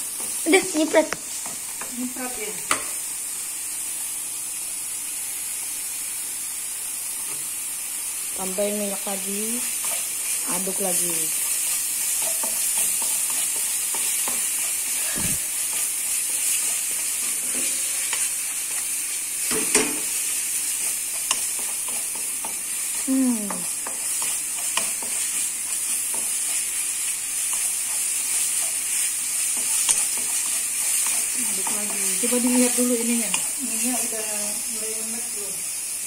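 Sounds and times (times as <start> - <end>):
paste sizzling in hot oil: 0.0 - 36.0
wooden spatula scraping wok: 9.6 - 18.8, 23.6 - 35.1.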